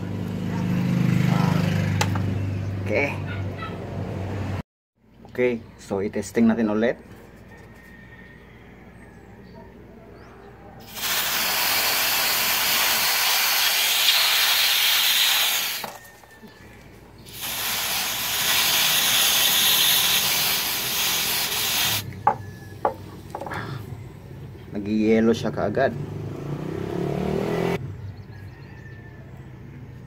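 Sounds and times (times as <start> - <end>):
gas spraying from nozzle: 10.8 - 16.1, 17.3 - 22.1.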